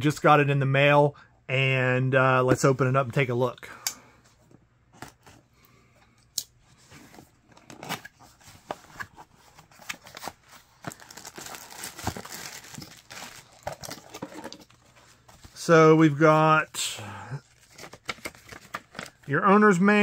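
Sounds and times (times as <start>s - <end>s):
plastic bag rustling: 10.0s - 15.6s.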